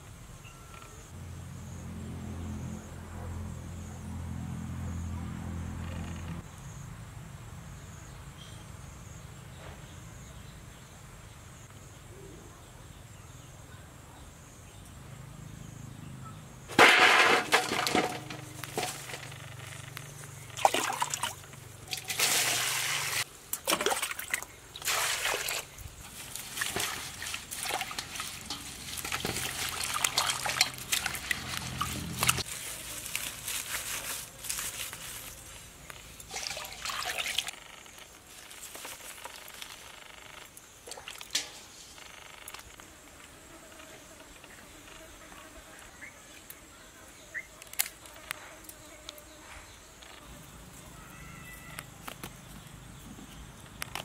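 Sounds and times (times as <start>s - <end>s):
water sloshing in metal bowl: 20.6s - 32.4s, 36.2s - 37.5s.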